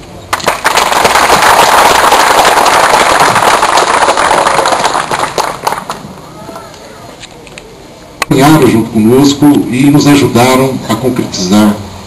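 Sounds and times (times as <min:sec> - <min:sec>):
crowd applauding: 0:00.3 - 0:06.0.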